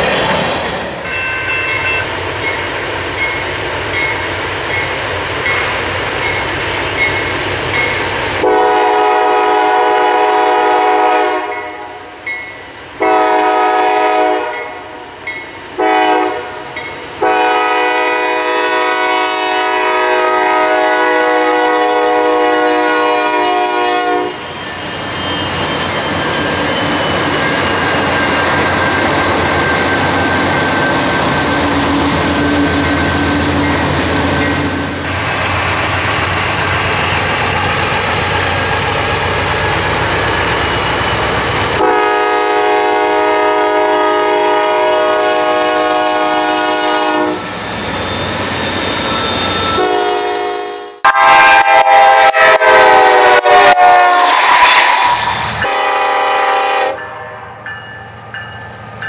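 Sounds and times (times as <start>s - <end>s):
freight locomotives rumbling past: 0.0s - 59.0s
locomotive air horn blast: 8.4s - 12.0s, 13.0s - 14.8s, 15.8s - 24.4s, 41.7s - 47.5s, 49.7s - 57.3s.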